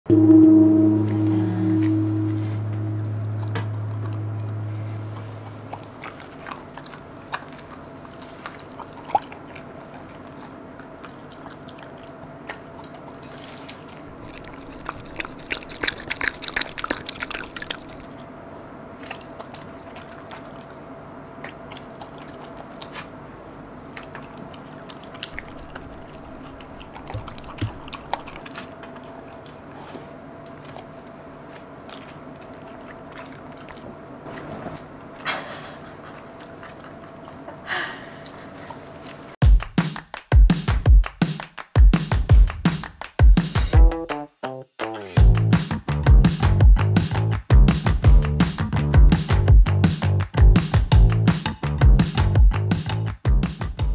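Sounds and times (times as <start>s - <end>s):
faint steady hum: 0.1s - 39.4s
dog chewing food: 3.4s - 18.3s, 18.9s - 37.6s.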